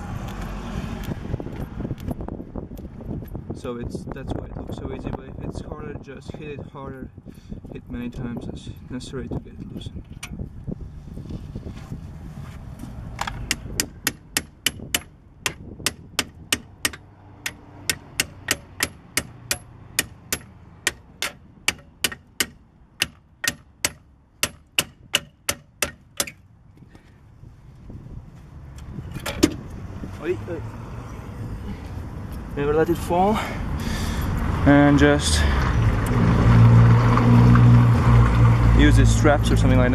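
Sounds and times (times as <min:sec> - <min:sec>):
hammer striking metal wrench: 0:16.8 - 0:26.4.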